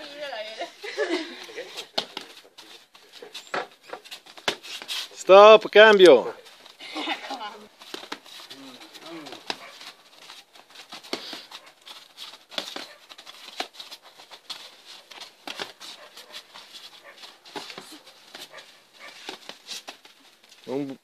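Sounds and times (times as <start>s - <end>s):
bare feet stepping on mat: 6.4s - 20.6s
punches slapping on gloves: 9.0s - 9.9s.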